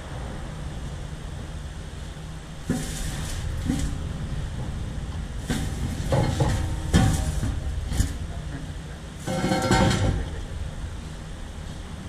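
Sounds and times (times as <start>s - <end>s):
low workshop rumble: 0.0s - 12.0s
steel knocks and clunks: 2.6s - 10.4s.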